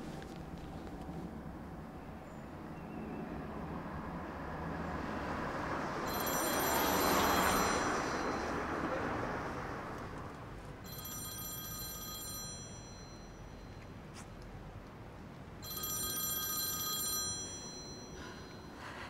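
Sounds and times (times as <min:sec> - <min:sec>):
mobile phone ringtone: 0:06.0 - 0:09.0, 0:10.8 - 0:14.0, 0:15.6 - 0:18.8.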